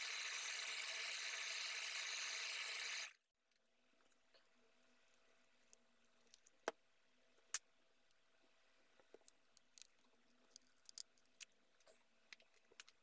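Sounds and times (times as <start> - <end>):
small ticks and crackles: 9.1 - 13.0.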